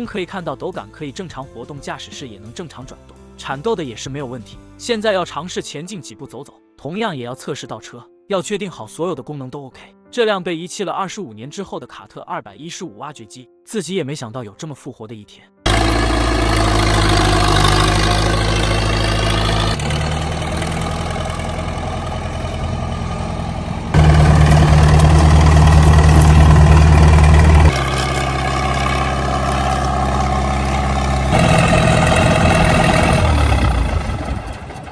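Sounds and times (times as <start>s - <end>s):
excavator diesel engine running: 15.7s - 34.9s.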